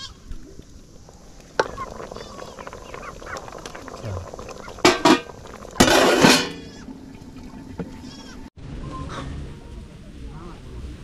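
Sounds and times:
goat bleating: 8.0 - 8.4.

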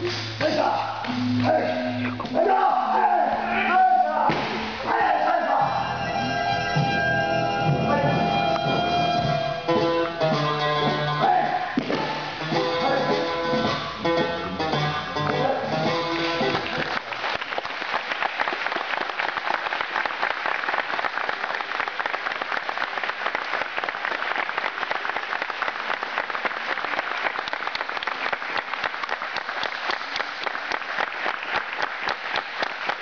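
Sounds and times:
audience applauding: 16.0 - 33.0.

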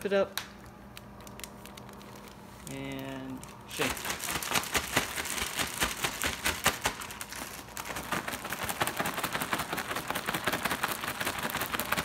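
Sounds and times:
plastic bag shaken crinkling: 3.7 - 12.0.

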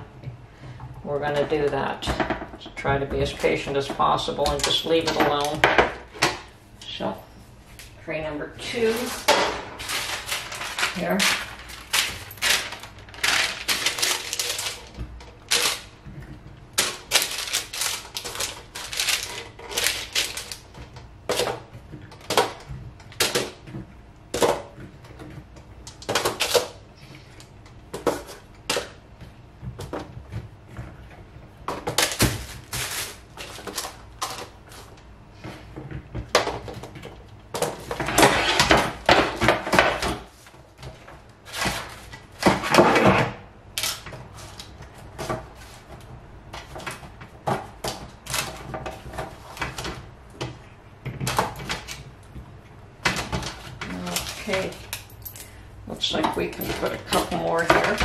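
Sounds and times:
handling noise: 8.6 - 58.0
paper rustling: 8.8 - 15.9.

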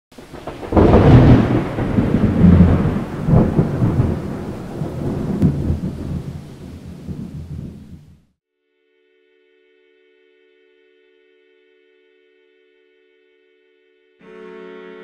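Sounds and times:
sharp thunder cracks: 0.2 - 8.2
thunder rumbling: 0.2 - 8.3.

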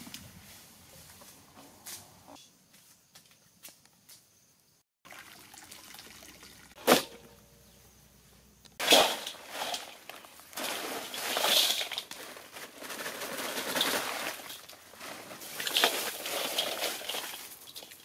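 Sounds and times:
hands pushing ice in bowl: 8.8 - 18.0
ice clattering into metal bowl: 8.8 - 18.0.

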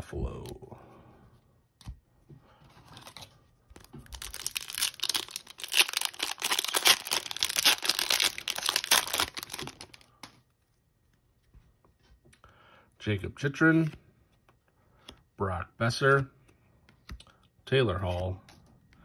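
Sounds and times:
card pack wrapper tearing: 4.0 - 10.1.

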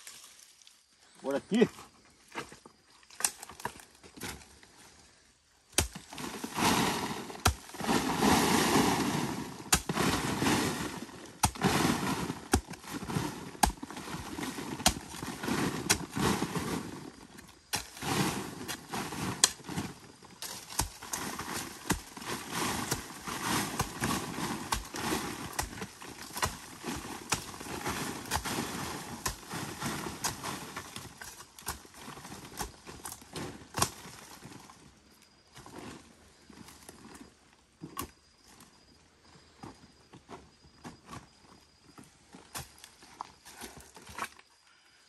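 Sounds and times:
soil scraping and shifting: 2.2 - 34.8
digging tool striking wet earth: 5.7 - 16.8, 17.7 - 34.0.

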